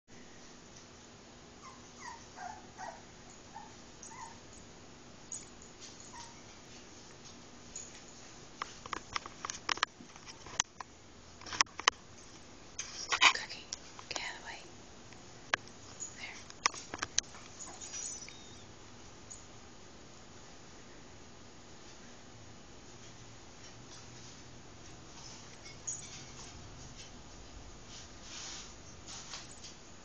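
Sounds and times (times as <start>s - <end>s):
puppies whimpering: 1.6s - 4.4s, 17.6s - 18.7s.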